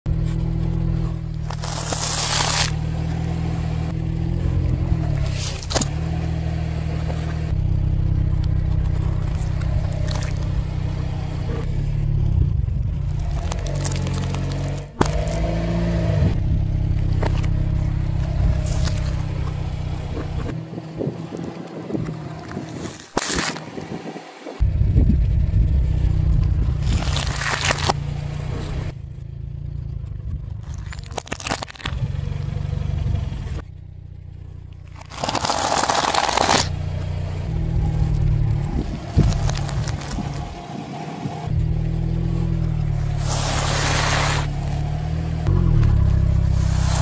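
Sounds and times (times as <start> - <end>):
tyre crushing crispy food: 1.4 - 2.8, 26.8 - 28.0, 30.6 - 31.9, 35.0 - 36.7
car engine idling: 2.8 - 22.5, 31.9 - 35.2.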